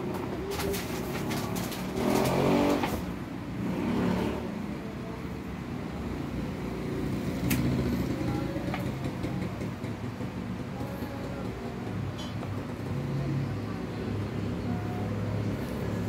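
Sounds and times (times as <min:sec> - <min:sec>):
vehicle engine revving: 0:01.9 - 0:04.6.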